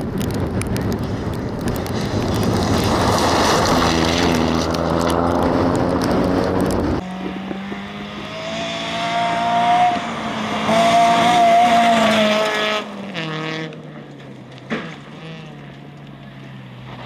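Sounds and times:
rally car engine at high revs: 2.3 - 13.8.

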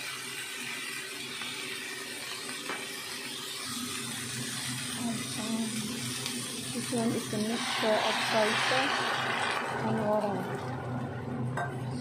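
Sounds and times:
vegetables sizzling in frying pan: 0.0 - 12.0.

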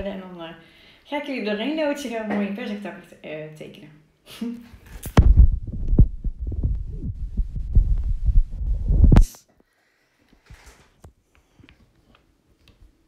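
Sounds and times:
knocks and thumps: 5.1 - 9.3.

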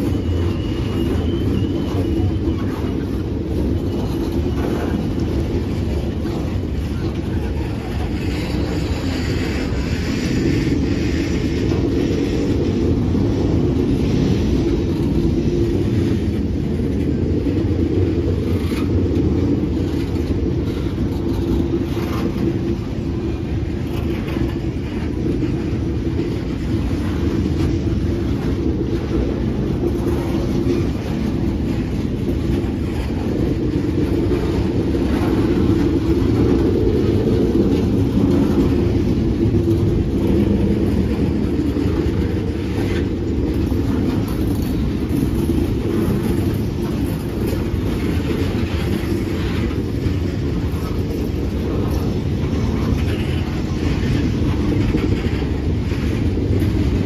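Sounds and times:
freight train wheels rumbling: 0.0 - 57.0.

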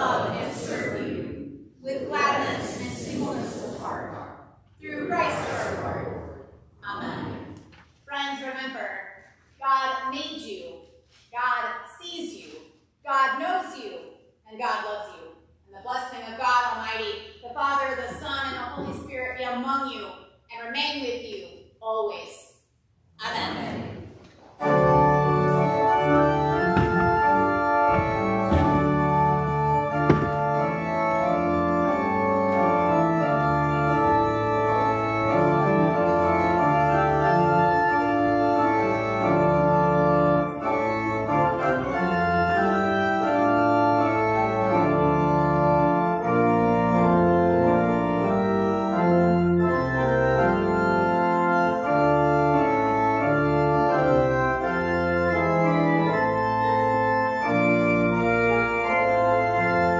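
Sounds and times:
church organ chords: 23.4 - 59.9.

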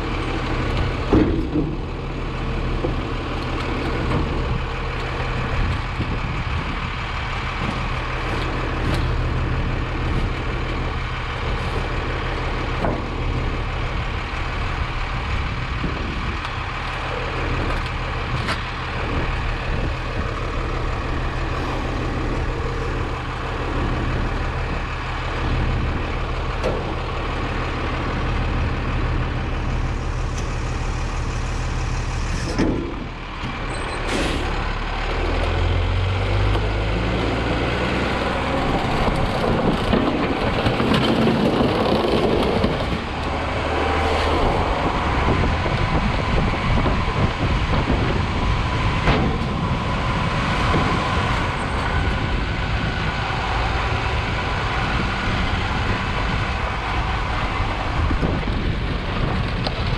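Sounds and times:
garbage truck engine idling: 0.0 - 59.9
trash knocking and clattering: 0.7 - 4.7, 38.8 - 43.3, 44.9 - 49.9.

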